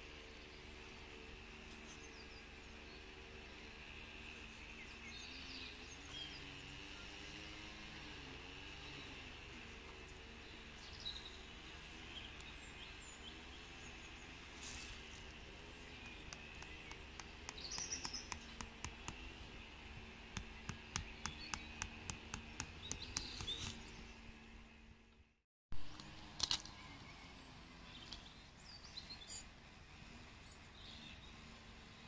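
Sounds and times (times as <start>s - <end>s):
low outdoor hum: 0.0s - 32.0s
birds chirping: 8.8s - 25.2s
tent peg being tapped: 16.2s - 19.3s, 20.4s - 23.7s.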